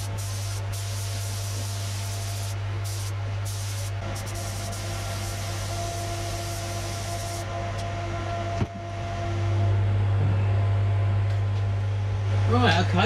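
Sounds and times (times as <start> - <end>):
spray gun hissing: 0.0 - 7.4
extractor fan humming: 0.0 - 13.0.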